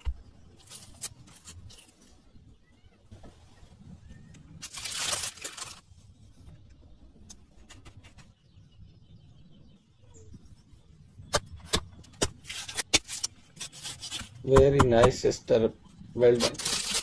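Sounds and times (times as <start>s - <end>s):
bandage packaging rustling: 4.6s - 5.9s, 12.5s - 14.4s, 16.4s - 17.0s.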